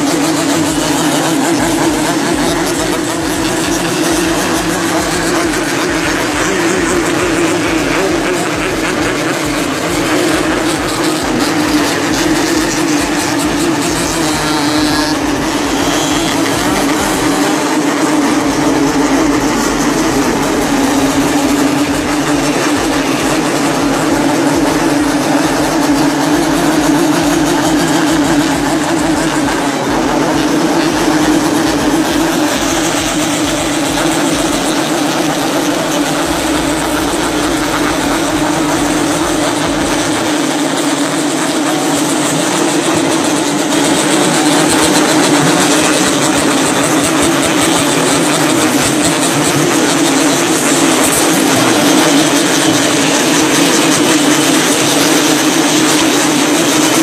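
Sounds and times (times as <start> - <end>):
many motorcycle engines running: 0.0 - 57.0.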